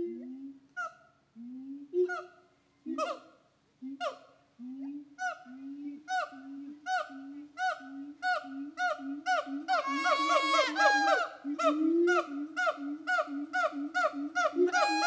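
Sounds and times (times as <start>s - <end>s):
higher drawn-out gibbon notes: 0.0s - 15.0s
gibbon hooting call: 2.0s - 3.3s, 6.1s - 15.0s.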